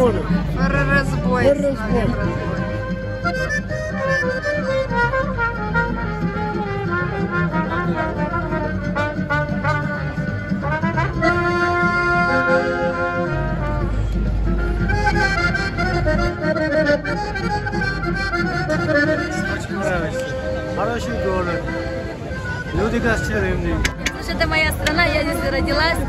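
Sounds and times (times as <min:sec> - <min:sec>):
accordion: 0:00.0 - 0:26.0
trumpet: 0:02.2 - 0:22.7.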